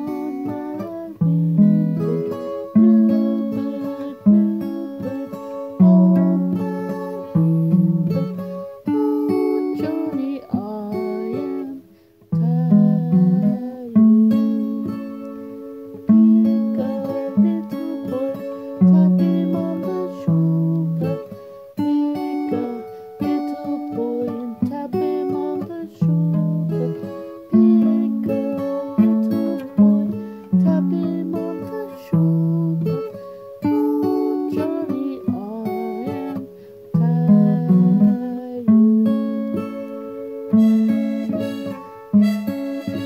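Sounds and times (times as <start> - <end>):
acoustic guitar chords: 0.0 - 43.0
harmonica melody: 39.6 - 43.0.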